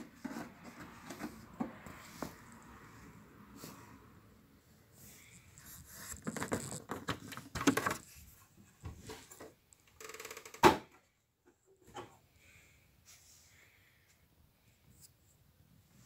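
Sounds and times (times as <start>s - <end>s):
case scraping and rubbing: 5.6s - 8.1s.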